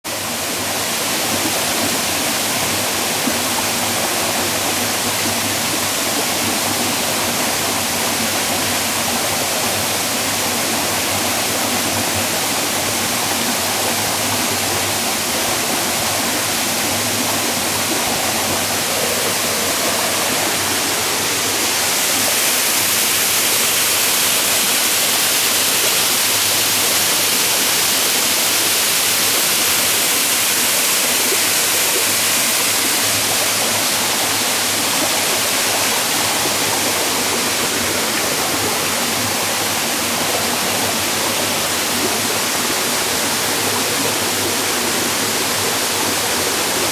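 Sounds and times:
small waterfall splashing: 0:00.0 - 0:46.9
spring water bubbling: 0:16.1 - 0:23.8.

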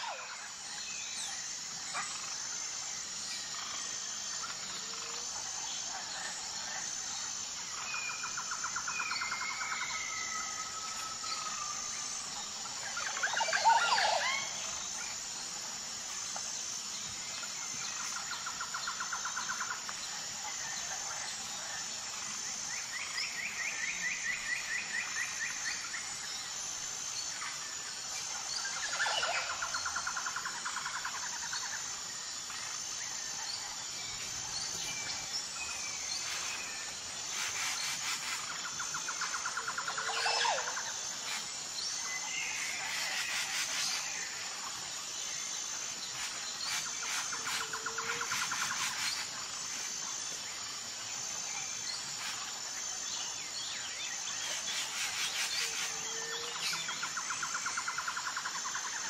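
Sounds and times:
steady high-pitched hiss: 0:00.0 - 0:59.0.

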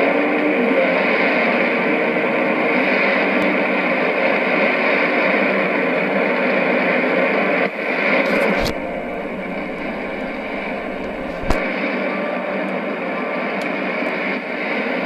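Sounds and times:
radio static hiss: 0:08.1 - 0:11.8
faint click: 0:08.3 - 0:11.7.

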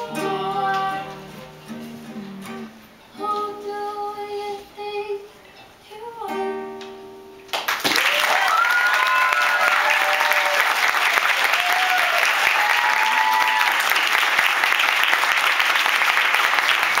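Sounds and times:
audience clapping: 0:07.5 - 0:17.0
audience cheering: 0:07.8 - 0:17.0.

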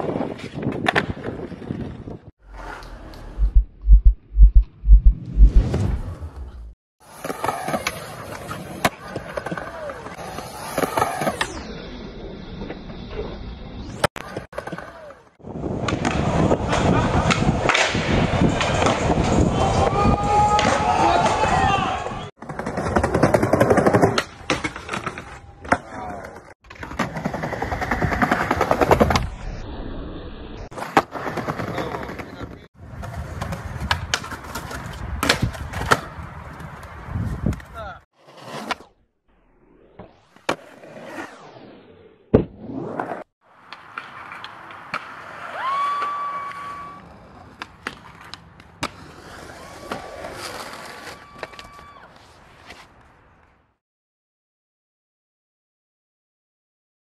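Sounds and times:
skateboard wheels rolling on concrete: 0:00.0 - 0:03.4, 0:05.6 - 0:53.8
skateboard clacks on ground: 0:33.0 - 0:37.8, 0:43.6 - 0:45.3, 0:47.4 - 0:49.1.

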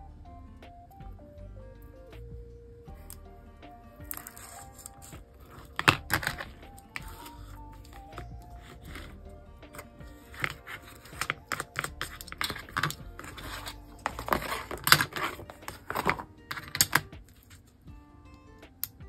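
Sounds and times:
paper and card taps and rustles: 0:04.0 - 0:17.8.

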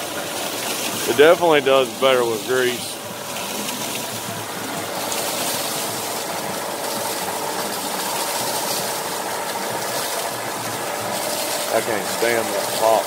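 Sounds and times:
water rushing: 0:00.0 - 0:13.0.

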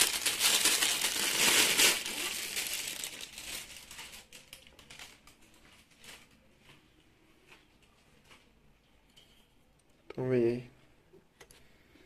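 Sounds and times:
plastic wrapping crinkling: 0:00.0 - 0:08.6.

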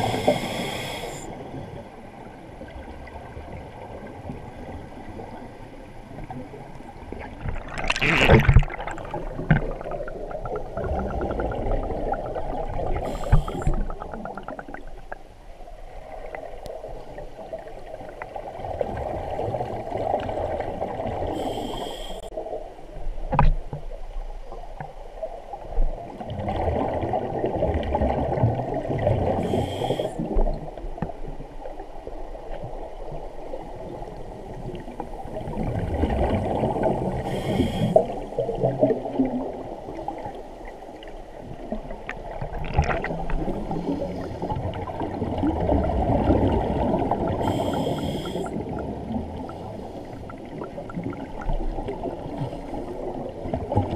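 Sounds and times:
regulator inhalation hiss: 0:00.0 - 0:01.3, 0:13.0 - 0:13.8, 0:21.4 - 0:22.3, 0:29.4 - 0:30.3, 0:37.2 - 0:38.1, 0:47.4 - 0:48.6
exhaled bubbles gurgling: 0:06.1 - 0:21.7, 0:26.2 - 0:31.2, 0:33.1 - 0:40.4, 0:41.0 - 0:53.9.

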